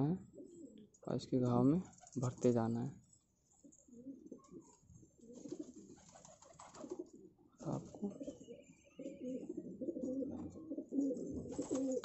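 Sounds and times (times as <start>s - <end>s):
pigeons cooing: 0.2s - 0.9s, 3.6s - 12.0s.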